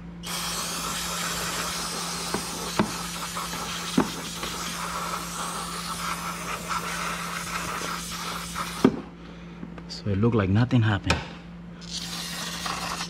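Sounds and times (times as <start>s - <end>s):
aerosol spraying hiss: 0.2s - 9.0s, 11.9s - 13.0s.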